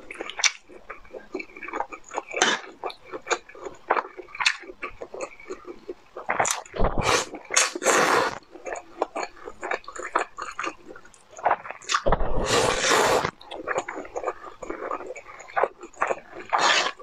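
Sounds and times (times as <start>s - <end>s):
wet chewing and mouth clicks: 0.0s - 17.0s
noodles being slurped: 6.3s - 8.4s, 11.8s - 17.0s.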